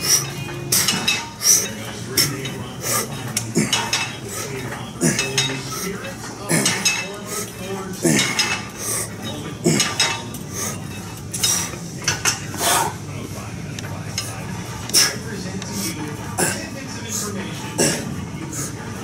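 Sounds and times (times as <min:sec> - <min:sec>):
cable machine weights clanking: 0:00.0 - 0:12.6.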